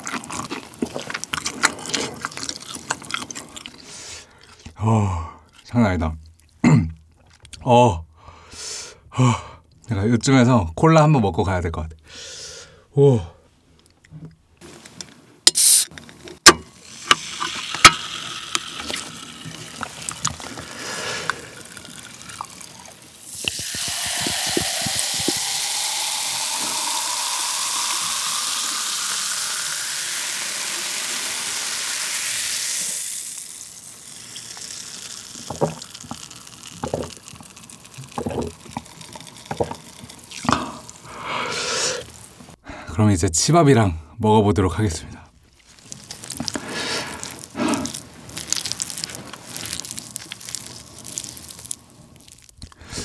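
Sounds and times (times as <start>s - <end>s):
fizzing drink pouring: 16.8s - 42.6s, 45.7s - 52.6s.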